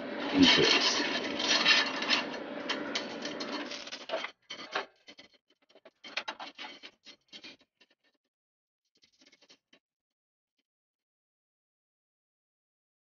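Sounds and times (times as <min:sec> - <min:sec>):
heating element scraping metal: 0:00.0 - 0:07.6.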